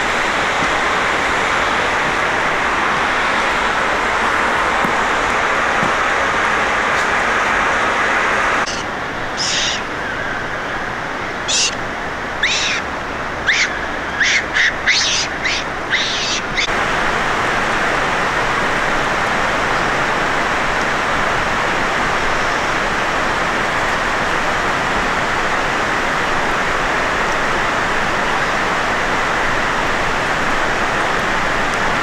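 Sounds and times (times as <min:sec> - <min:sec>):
rushing water: 0:00.0 - 0:32.0
small bird chirping: 0:08.7 - 0:09.9, 0:11.5 - 0:11.8, 0:12.4 - 0:12.9, 0:13.5 - 0:16.7.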